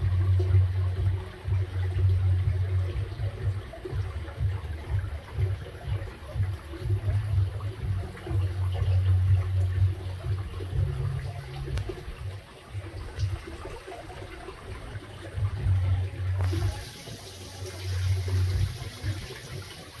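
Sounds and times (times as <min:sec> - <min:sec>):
low rumbles: 0:00.0 - 0:13.6, 0:14.9 - 0:16.8
small waterfall splashing into pond: 0:00.0 - 0:20.0.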